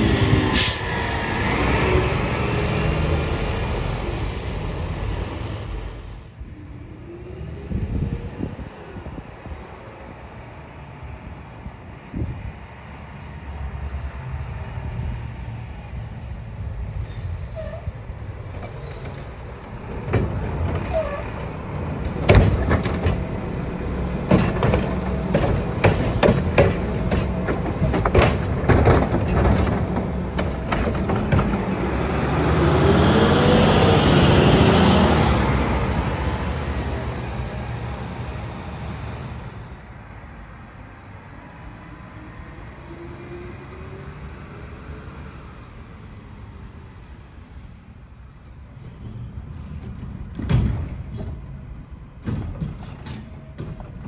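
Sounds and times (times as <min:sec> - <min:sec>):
truck engine revving with hiss: 0:00.0 - 0:06.2
bangs from arm and cart: 0:22.2 - 0:23.2, 0:24.2 - 0:31.7, 0:49.9 - 0:51.6.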